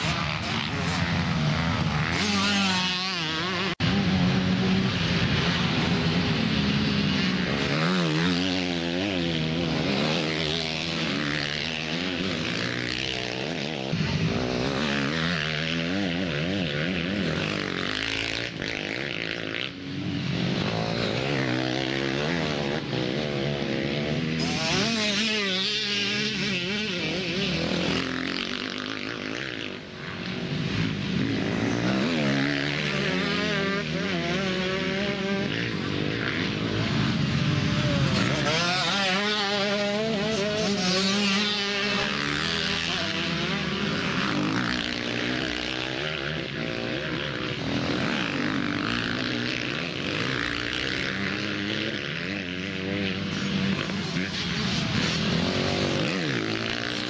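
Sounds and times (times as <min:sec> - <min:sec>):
motocross bike engines revving: 0:00.0 - 0:57.0.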